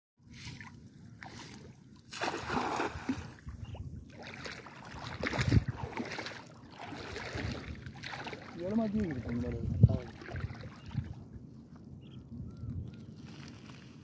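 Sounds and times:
water moving around wader: 0.2s - 14.0s
net splashing onto water: 0.5s - 3.4s, 4.1s - 9.4s, 10.0s - 10.8s.

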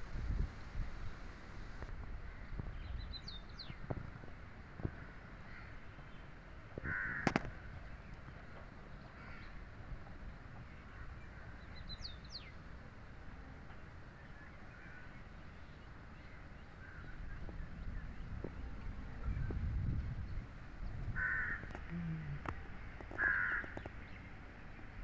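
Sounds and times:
low outdoor rumble: 0.0s - 25.0s
crow cawing: 6.8s - 7.4s, 21.2s - 21.8s, 23.1s - 23.8s
sharp click: 7.2s - 7.5s.

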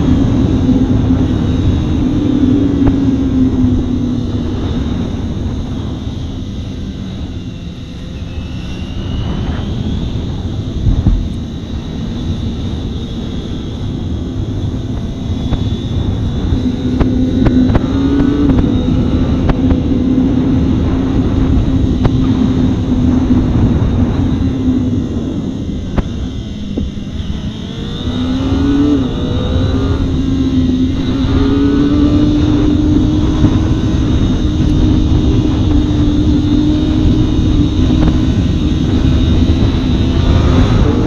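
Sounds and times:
motorcycle engine running: 0.0s - 41.0s
rushing wind noise: 0.0s - 41.0s.

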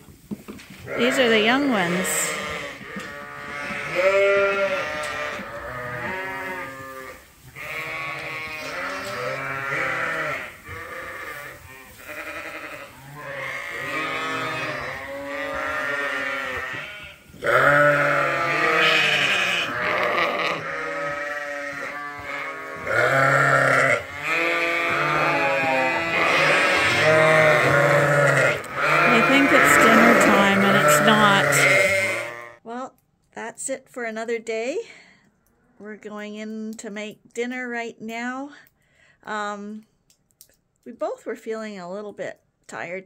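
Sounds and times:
sheep and lambs bleating: 0.8s - 32.6s.

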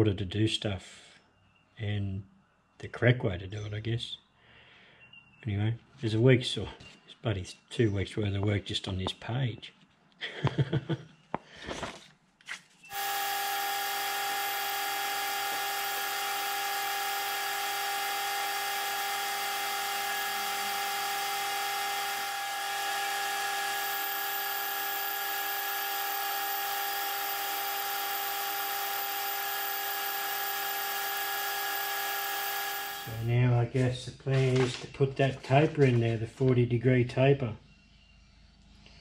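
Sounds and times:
boring bar cutting metal: 12.9s - 33.3s
metal lathe whining: 12.9s - 33.3s.

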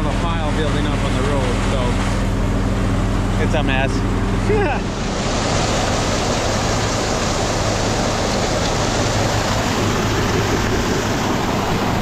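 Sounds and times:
low machine hum: 0.0s - 12.0s
grain rushing through cleaner: 0.5s - 12.0s.

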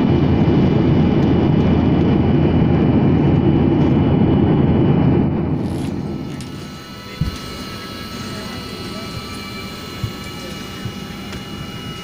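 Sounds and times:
jet engine rumble: 0.0s - 12.0s
faint high whine: 5.5s - 12.0s.

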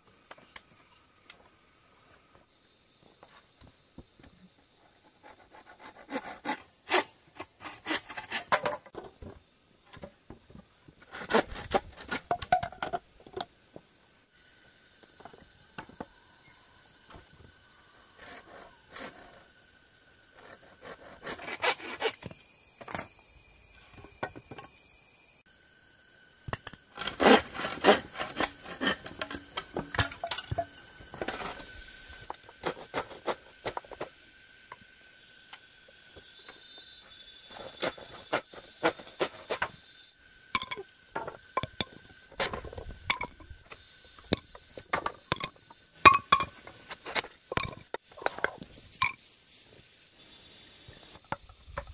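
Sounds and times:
scraping and knocking on bamboo: 3.2s - 13.9s, 18.1s - 19.5s, 20.3s - 23.1s, 26.6s - 34.2s, 36.2s - 39.8s, 40.6s - 49.4s.

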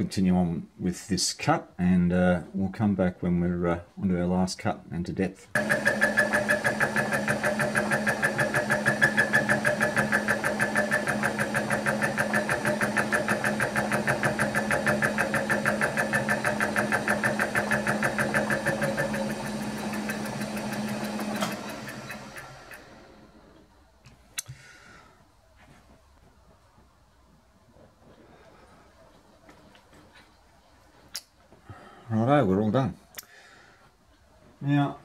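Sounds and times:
milling machine hum: 5.6s - 23.4s.

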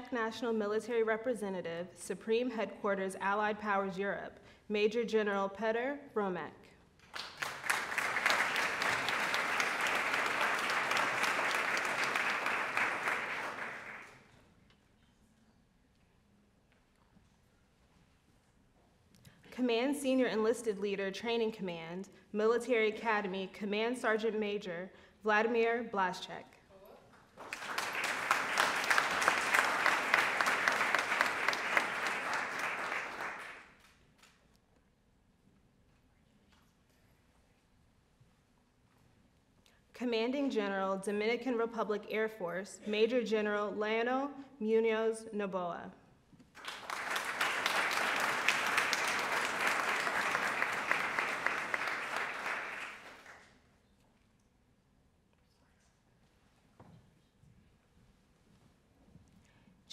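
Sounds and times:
audience applauding: 7.1s - 14.2s, 27.4s - 33.8s, 46.6s - 53.4s.

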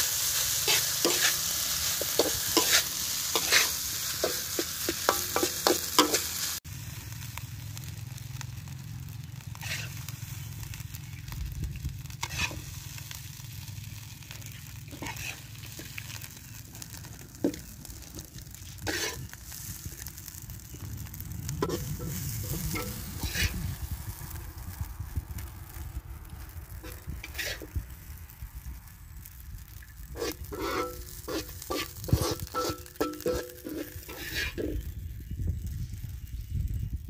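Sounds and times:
ladle scraping a wok: 0.0s - 6.6s, 9.5s - 10.1s, 12.0s - 13.2s, 14.9s - 16.3s, 16.9s - 20.4s, 21.6s - 23.8s, 26.8s - 27.8s, 30.1s - 34.9s
metal spatula scraping a wok: 0.0s - 6.6s, 9.5s - 10.6s, 12.0s - 13.4s, 14.4s - 23.8s, 26.8s - 27.8s, 30.1s - 35.0s
faint sizzling: 0.0s - 24.5s, 29.0s - 34.9s
steady low rumble: 18.8s - 37.0s.

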